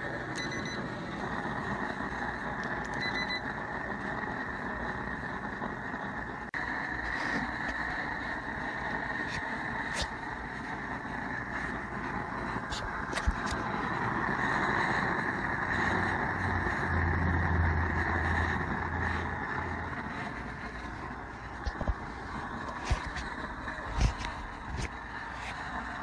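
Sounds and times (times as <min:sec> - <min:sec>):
torch burner hissing: 0:00.0 - 0:26.0
short electronic beeps: 0:00.4 - 0:00.9, 0:03.0 - 0:03.4.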